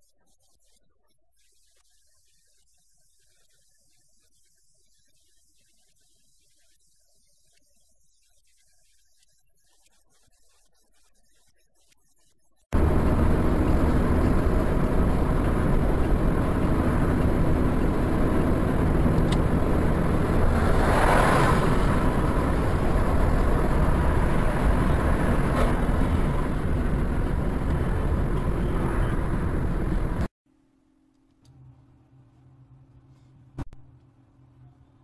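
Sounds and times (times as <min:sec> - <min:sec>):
car road and engine noise: 0:12.8 - 0:30.3.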